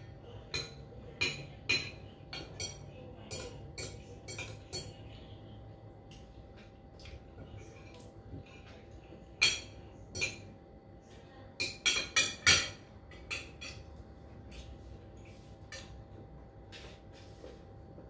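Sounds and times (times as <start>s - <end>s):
cutlery clinking against a bowl: 0.0s - 5.2s, 9.4s - 10.6s, 11.6s - 14.7s, 15.6s - 16.0s.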